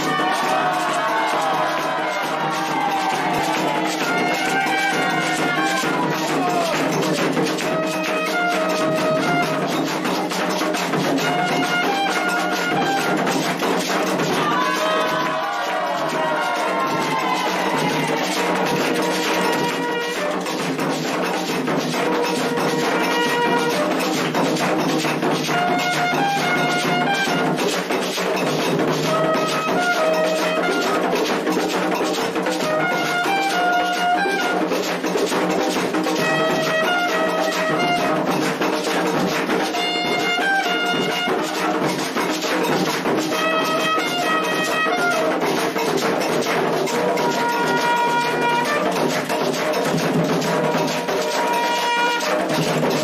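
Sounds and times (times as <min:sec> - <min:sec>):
trumpet playing held notes: 0:00.0 - 0:06.8, 0:07.6 - 0:09.8, 0:11.2 - 0:13.2, 0:18.6 - 0:20.6, 0:22.2 - 0:24.2, 0:25.5 - 0:27.6, 0:29.0 - 0:31.1, 0:32.6 - 0:35.0, 0:36.1 - 0:38.5, 0:39.6 - 0:41.8, 0:43.3 - 0:45.6, 0:47.1 - 0:49.2, 0:50.8 - 0:53.0
ritual drumming: 0:00.0 - 0:53.0.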